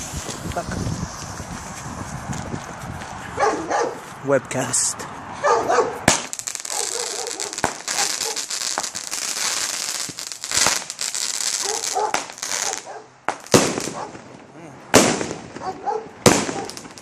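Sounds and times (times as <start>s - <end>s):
firework crackling: 0.0s - 2.3s, 6.1s - 17.0s
firework shots: 6.0s - 17.0s.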